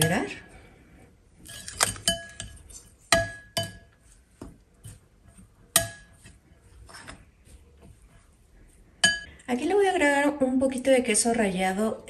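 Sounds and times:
metal spoon clinking against glass bowl: 0:01.5 - 0:03.9, 0:05.8 - 0:06.2, 0:09.0 - 0:09.3.

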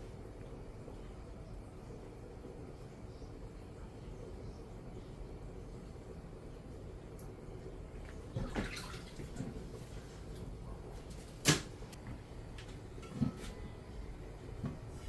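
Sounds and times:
dishes and utensils clattering: 0:13.0 - 0:13.6.

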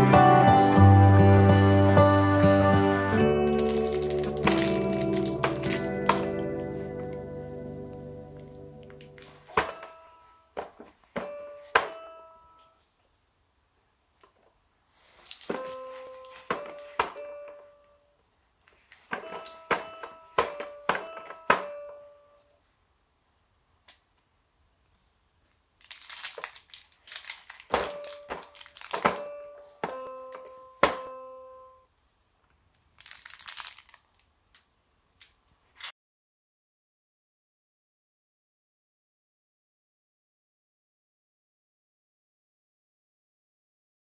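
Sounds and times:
plastic rings clacking: 0:03.4 - 0:06.4, 0:18.8 - 0:21.8, 0:25.8 - 0:31.0
fabric toy crinkling: 0:03.4 - 0:06.8, 0:09.0 - 0:12.0, 0:14.9 - 0:17.2, 0:18.6 - 0:20.8, 0:25.8 - 0:30.6, 0:32.7 - 0:35.9.

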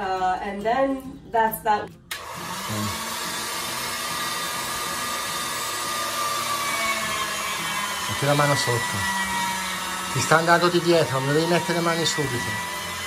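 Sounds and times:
pasta machine motor whirring: 0:02.1 - 0:13.0.

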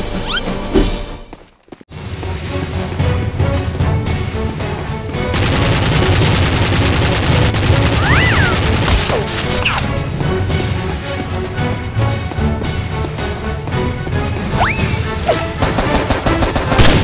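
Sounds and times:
rapid gunfire sound effects: 0:05.3 - 0:09.6, 0:15.4 - 0:17.0.

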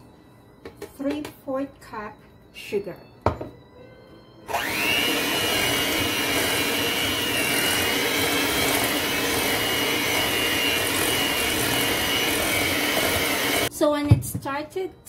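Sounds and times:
electric hand mixer whining: 0:04.4 - 0:13.7.

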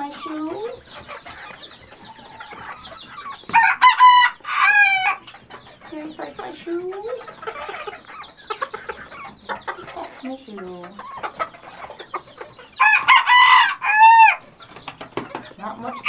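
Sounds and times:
hens clucking: 0:00.0 - 0:16.0
rooster crowing: 0:03.6 - 0:05.2, 0:12.8 - 0:14.4.

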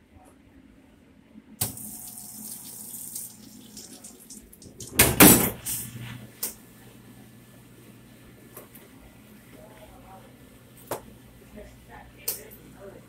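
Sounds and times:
water splashing in dishwasher: 0:01.6 - 0:05.6.

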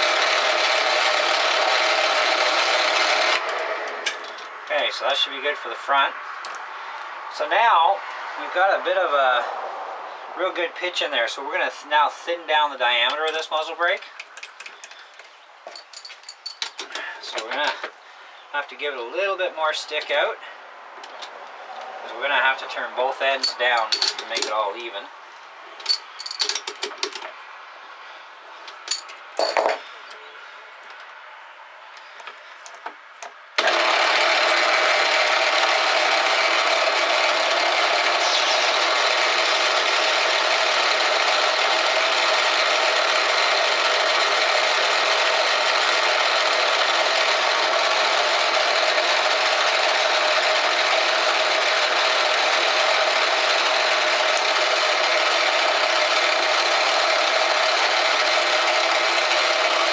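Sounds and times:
metal lathe running: 0:00.0 - 0:04.1, 0:33.6 - 0:59.9
metal clinks and knocks: 0:14.1 - 0:17.1, 0:23.4 - 0:24.6, 0:25.8 - 0:27.4, 0:28.7 - 0:30.2.

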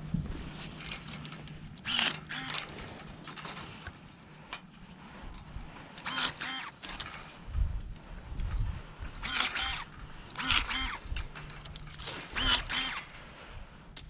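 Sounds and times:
pruning shears snipping: 0:06.0 - 0:07.3, 0:09.2 - 0:13.1.

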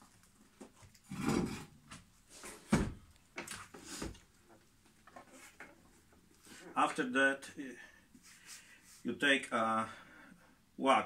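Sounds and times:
rustling and scraping: 0:00.0 - 0:02.8, 0:03.4 - 0:07.1.

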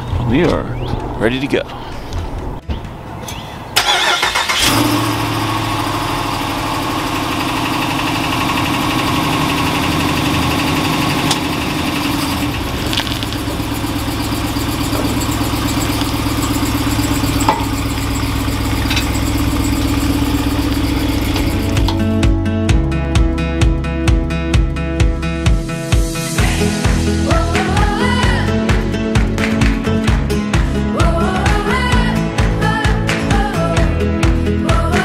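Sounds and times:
truck engine cranking: 0:03.3 - 0:22.2
truck engine idling: 0:03.8 - 0:22.4.

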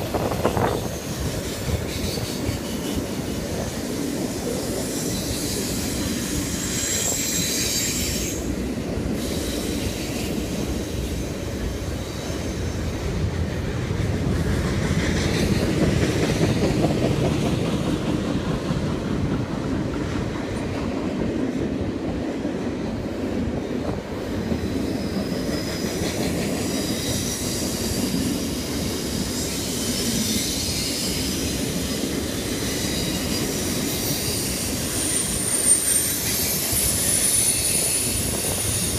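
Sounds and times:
train wheels rumbling on rail: 0:00.0 - 0:38.9
high-pitched wheel squeal: 0:04.9 - 0:08.5, 0:32.3 - 0:38.9.

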